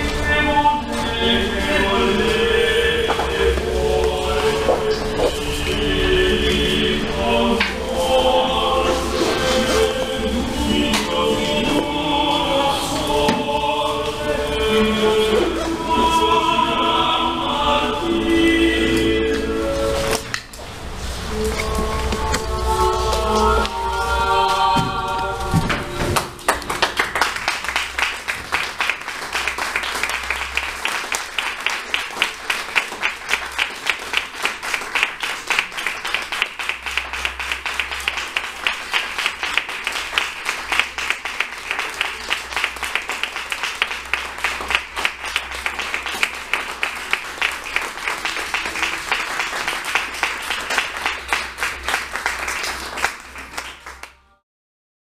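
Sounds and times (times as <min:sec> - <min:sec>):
music: 0:00.0 - 0:54.4
audience applauding: 0:26.0 - 0:54.2.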